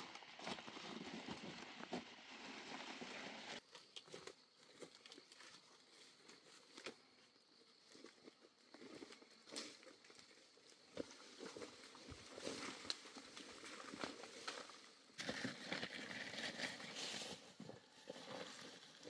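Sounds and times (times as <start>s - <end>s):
undergrowth rustling and crunching: 8.0s - 19.0s.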